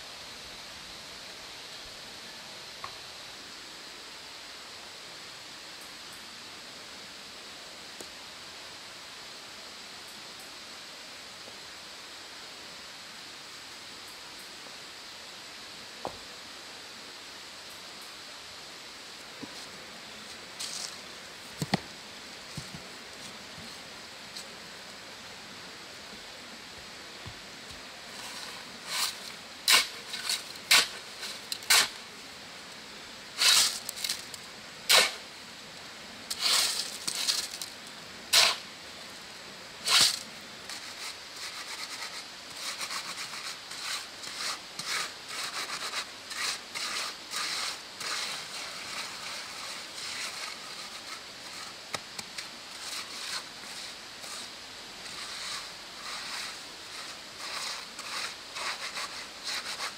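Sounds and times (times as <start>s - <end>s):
steel trowel scraping mortar: 28.1s - 32.0s, 33.4s - 34.3s, 34.9s - 35.2s, 36.3s - 37.6s, 38.3s - 38.6s, 39.8s - 59.9s.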